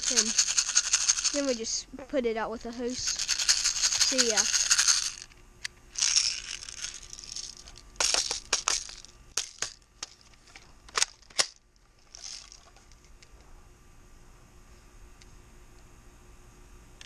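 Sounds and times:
plastic clicks and clacks of toy shotgun: 0:10.9 - 0:11.6.

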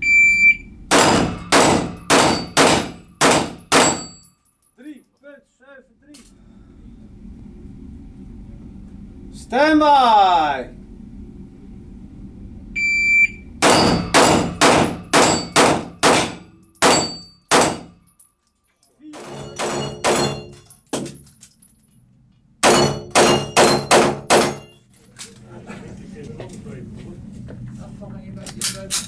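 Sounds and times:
electronic timer beep: 0:00.0 - 0:00.7, 0:12.8 - 0:13.4
rapid pistol fire indoors: 0:00.9 - 0:04.2, 0:13.6 - 0:18.0, 0:19.2 - 0:21.1, 0:22.6 - 0:24.8.

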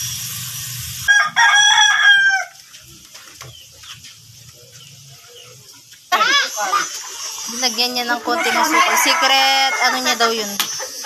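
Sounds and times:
rooster crowing: 0:01.1 - 0:02.6, 0:08.2 - 0:11.0.

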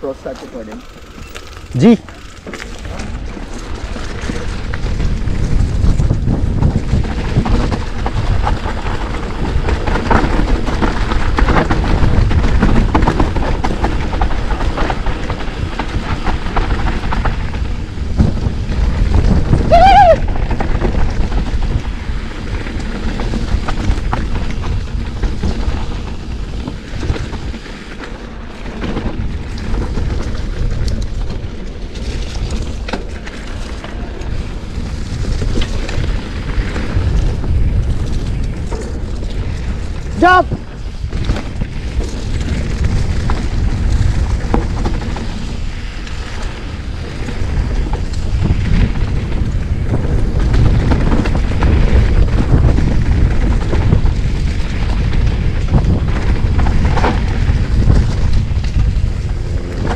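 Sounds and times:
bike rattling: 0:00.0 - 0:59.9
bike tyres rumbling on dirt: 0:00.0 - 0:59.9
wind buffeting microphone: 0:00.8 - 0:59.9.

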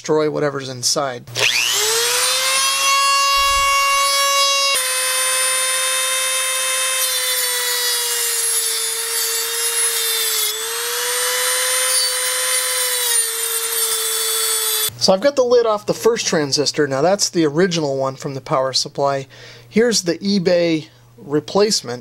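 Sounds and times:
cutoff wheel grinding metal: 0:01.4 - 0:14.9
rotary tool whining: 0:01.4 - 0:14.9.

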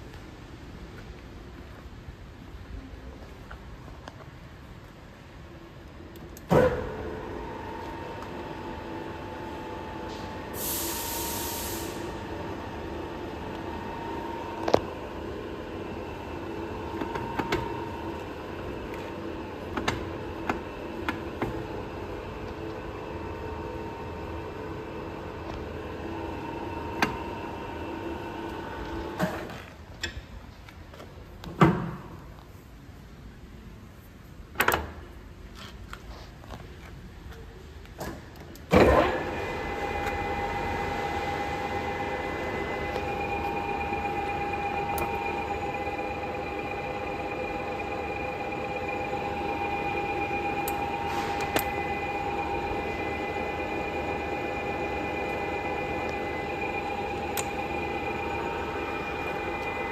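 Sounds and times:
lathe geared whine: 0:06.8 - 0:29.2, 0:38.8 - 0:59.9.

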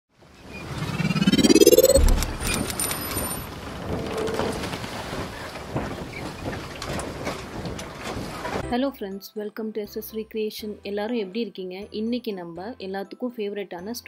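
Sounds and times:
noisy crackle: 0:00.3 - 0:07.0
rising whoosh: 0:00.5 - 0:02.9.

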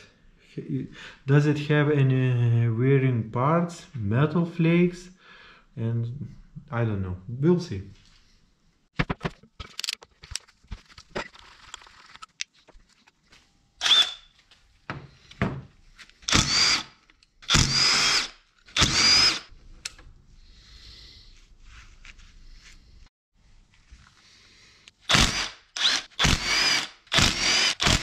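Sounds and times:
tool handling clicks and knocks: 0:09.0 - 0:13.2
power drill whine: 0:13.8 - 0:14.3, 0:16.3 - 0:19.5, 0:25.1 - 0:28.0.

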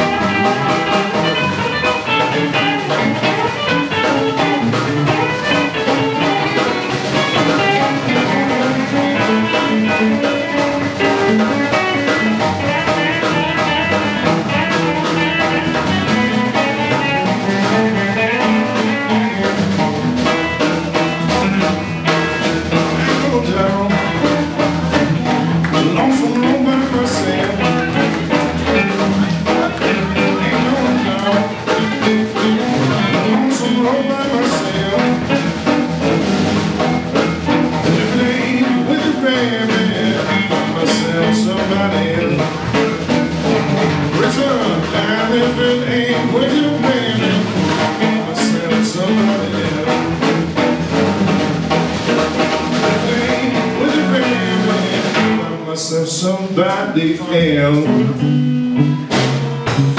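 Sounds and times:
blues band playing instrumental: 0:00.0 - 0:59.9.

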